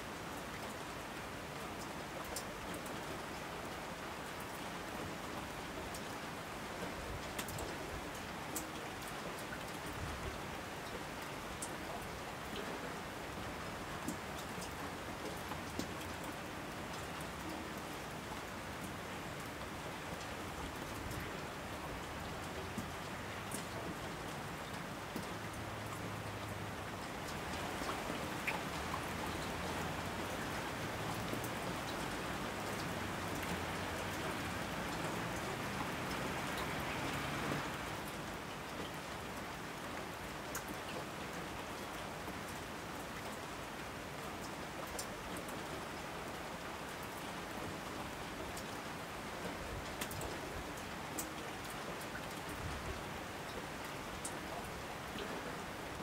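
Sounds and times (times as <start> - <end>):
steady rain falling: 0.0 - 56.0
raindrops ticking: 13.9 - 21.4, 22.0 - 39.5, 40.4 - 42.5, 51.1 - 52.6.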